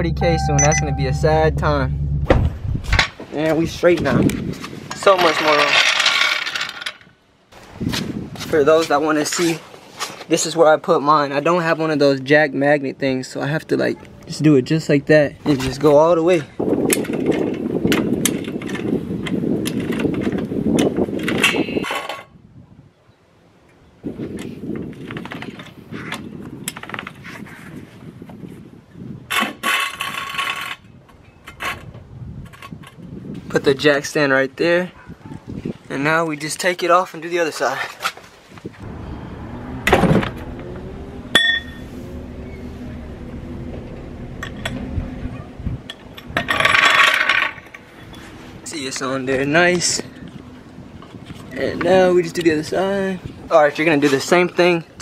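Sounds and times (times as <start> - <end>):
steady low hum: 0.0 - 3.0
metallic clink ringing: 41.4 - 41.8.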